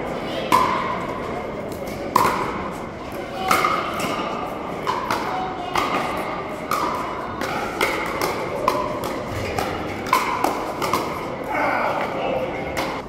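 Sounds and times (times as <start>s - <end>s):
paddles striking plastic ball: 4.8s - 11.2s.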